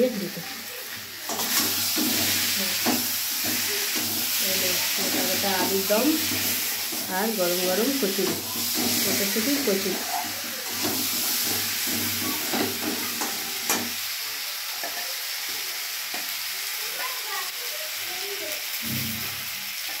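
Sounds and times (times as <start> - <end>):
potatoes sizzling in a pan: 0.0 - 20.0
metal spatula scraping a pan: 0.8 - 14.0.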